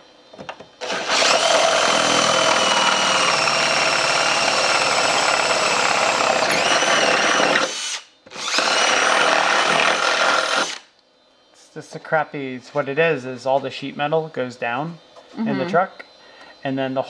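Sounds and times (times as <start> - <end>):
cordless drill drilling metal: 0.8 - 10.9.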